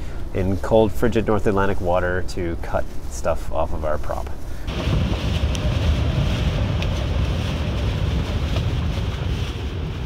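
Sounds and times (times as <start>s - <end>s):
hiss of wind: 0.0s - 10.0s
choppy water: 4.6s - 10.0s
wind buffeting microphone: 4.7s - 10.0s.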